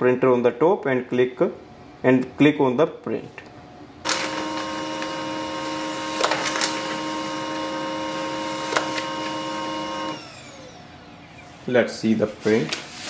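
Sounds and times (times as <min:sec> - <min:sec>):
printer motor whine: 0:04.0 - 0:11.2
paper feed clicks: 0:04.1 - 0:10.2.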